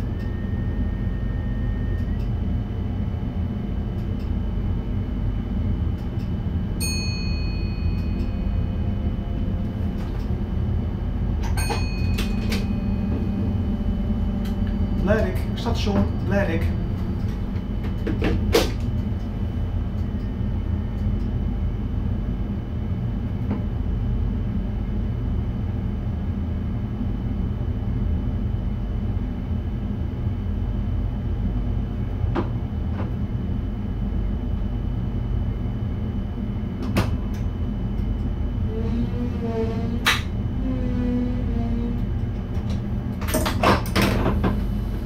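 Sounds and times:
faint high whine: 0.0 - 21.3
train cab low rumble: 0.0 - 45.0.

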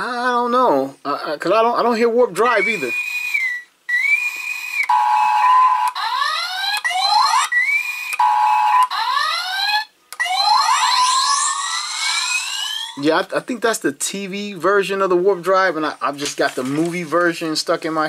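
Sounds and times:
electronic toy tones and sweeps: 2.5 - 4.9, 10.2 - 13.0.

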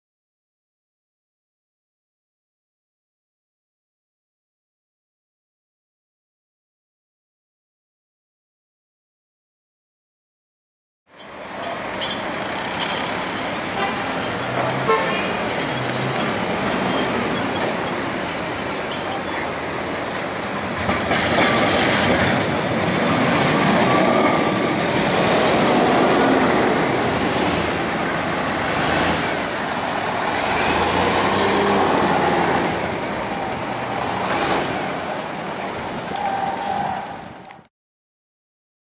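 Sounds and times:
city traffic: 11.1 - 37.7
tram rolling on rails: 11.1 - 37.7.

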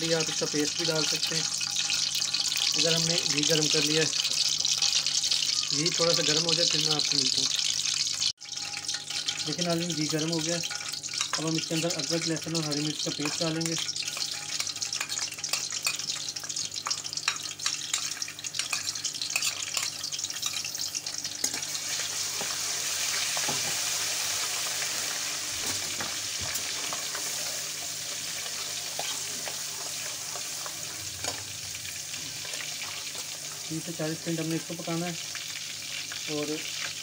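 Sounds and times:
paste sizzling in hot oil: 0.0 - 37.0
metal ladle stirring: 1.0 - 2.9, 3.6 - 6.2, 8.4 - 12.2, 13.1 - 20.8, 26.6 - 31.4.

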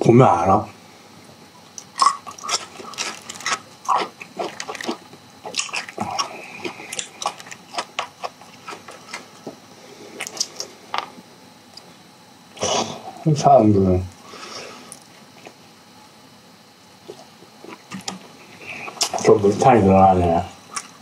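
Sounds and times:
mouth chewing meat: 1.7 - 11.1, 16.9 - 19.4.

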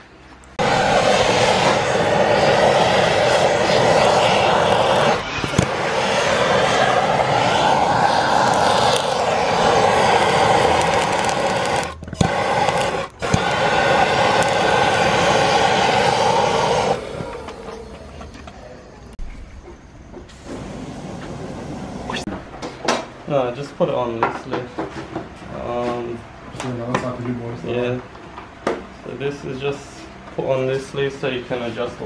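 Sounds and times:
gas torch flame rushing: 0.0 - 18.6, 20.3 - 22.6.

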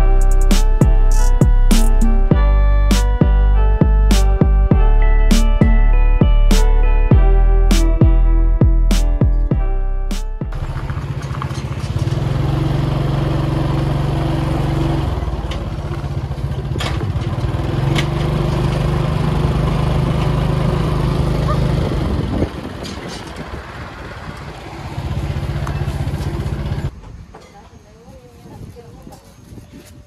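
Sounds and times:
small motorcycle engine running: 10.5 - 26.9.

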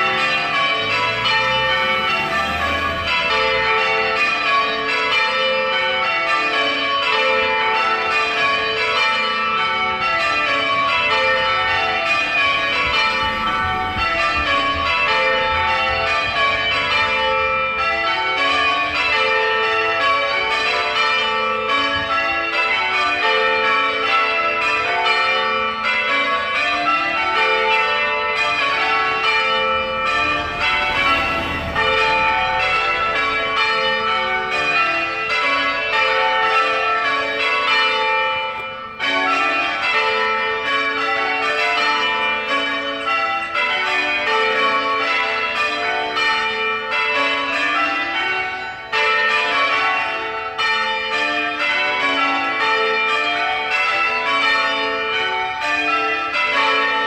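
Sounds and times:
church bells ringing: 0.0 - 57.0.

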